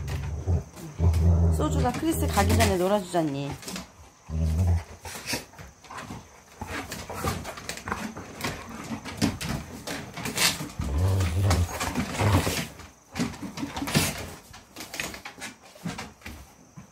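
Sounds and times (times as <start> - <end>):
dogs play growling: 0.0 - 15.2.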